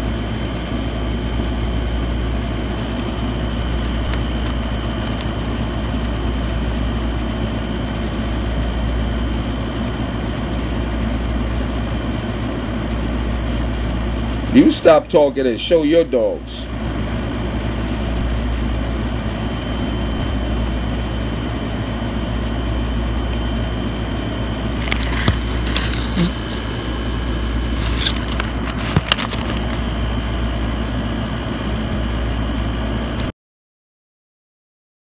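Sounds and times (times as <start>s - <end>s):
machine humming and rushing: 16.6s - 33.3s.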